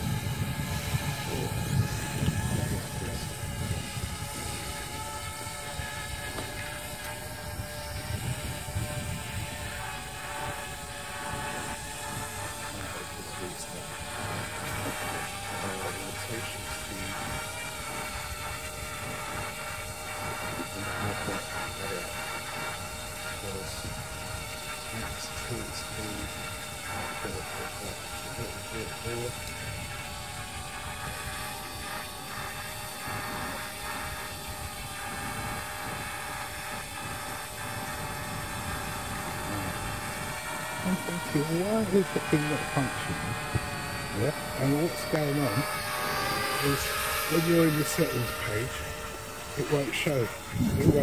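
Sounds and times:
drone propellers whining: 0.0s - 51.0s
wind rumbling on microphone: 0.0s - 51.0s.

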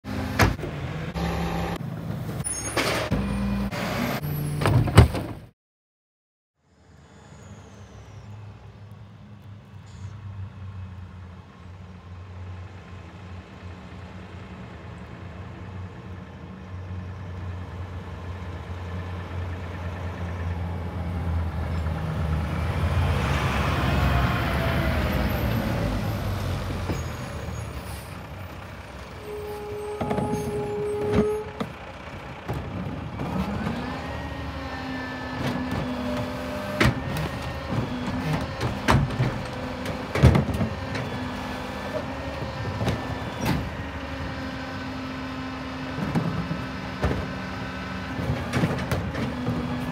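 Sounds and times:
garbage truck diesel engine: 0.0s - 5.5s, 6.9s - 49.9s
hydraulic whine: 0.1s - 1.8s, 29.2s - 31.8s
brake squeal: 0.8s - 5.4s, 6.7s - 8.9s, 9.8s - 10.3s, 23.9s - 49.9s.

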